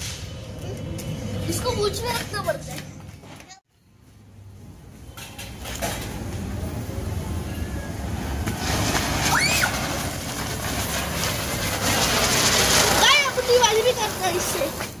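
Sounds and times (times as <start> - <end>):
firework fountain hissing: 8.0 - 15.0.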